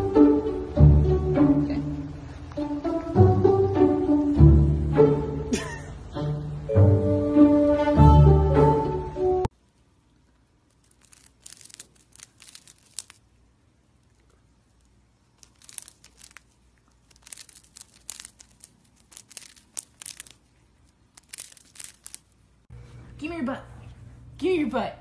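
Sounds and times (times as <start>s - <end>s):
hamster crunching biscuit: 10.3s - 22.5s.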